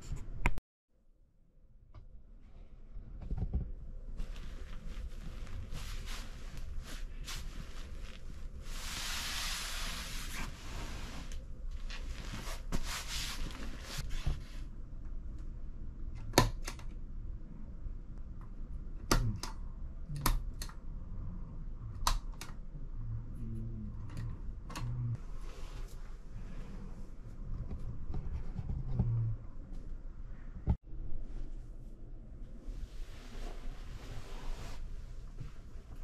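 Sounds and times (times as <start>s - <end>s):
bedding rustling: 4.1s - 14.7s.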